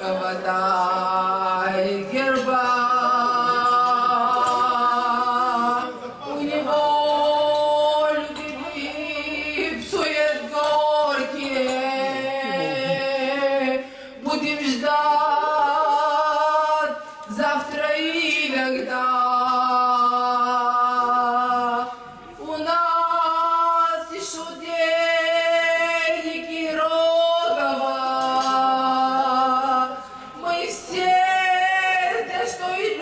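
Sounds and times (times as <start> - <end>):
woman singing slow song: 0.0 - 33.0
man singing: 9.8 - 21.8.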